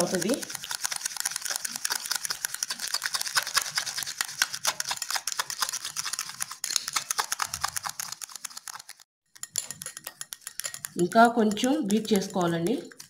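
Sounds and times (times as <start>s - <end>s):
spoon clicking against glass bowl: 9.4s - 13.0s.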